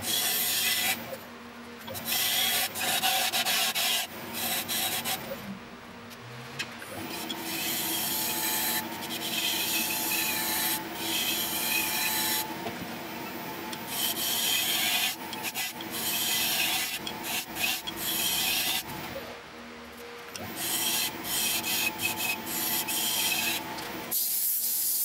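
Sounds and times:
turning tool scraping wood: 2.0s - 5.3s
wood lathe humming: 2.0s - 5.3s, 7.0s - 19.2s, 20.4s - 24.1s.

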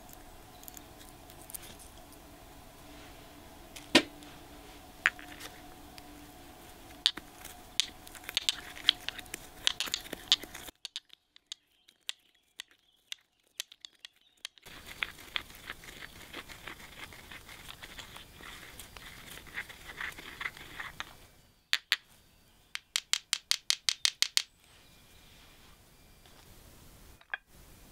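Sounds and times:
pods crushed in stone mortar: 5.0s - 22.0s.

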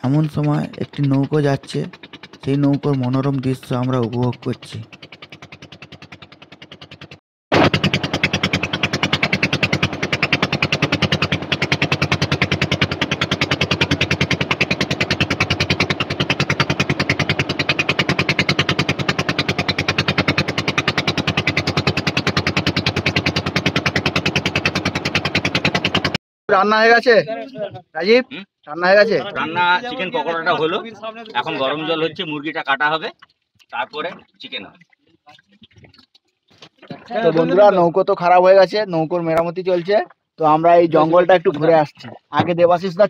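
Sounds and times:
motor boat engine chugging: 0.0s - 26.2s.

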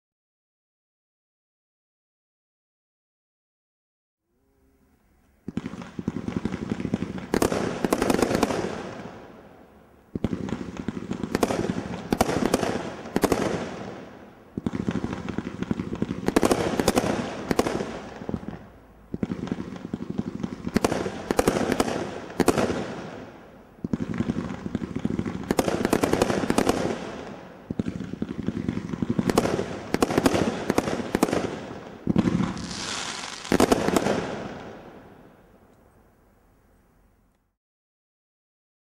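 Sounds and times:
firework barrage shots and bursts: 5.5s - 9.4s, 10.1s - 35.3s
firework hiss: 32.2s - 34.4s.

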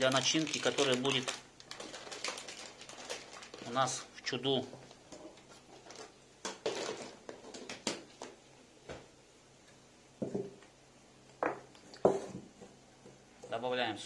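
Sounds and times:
ceramic knocks and clinks on table: 11.4s - 12.5s.

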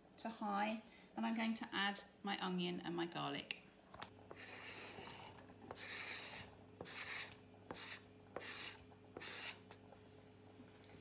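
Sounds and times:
wooden spatula scraping board: 4.3s - 9.7s.

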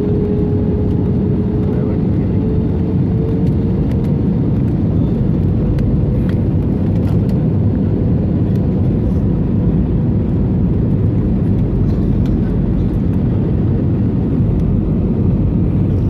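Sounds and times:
airliner engines roaring: 0.0s - 16.0s.

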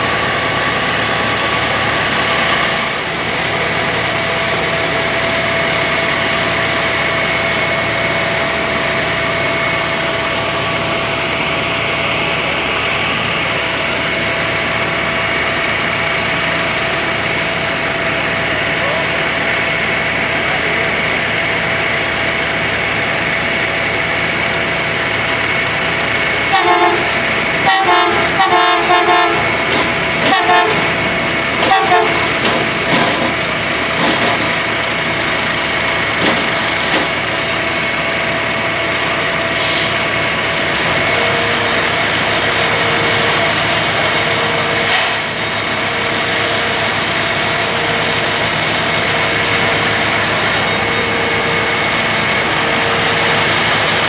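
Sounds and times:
diesel engines humming: 0.0s - 54.0s
short horn toots: 31.6s - 32.3s.

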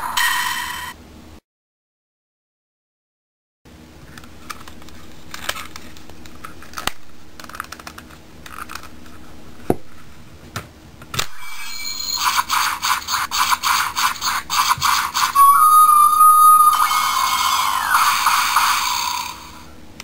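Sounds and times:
plastic toy clicking and snapping: 4.5s - 9.0s
toy electronic repeating tones: 14.7s - 19.0s.

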